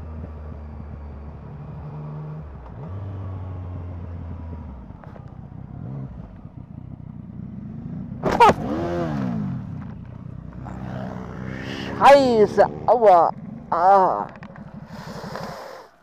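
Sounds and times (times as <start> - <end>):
motorcycle engine running: 0.0 - 15.9
motorcycle crash: 8.2 - 8.7.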